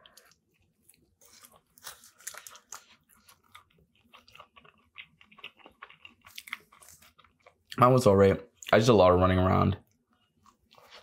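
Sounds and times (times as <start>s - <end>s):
chewing bread: 0.0s - 7.8s.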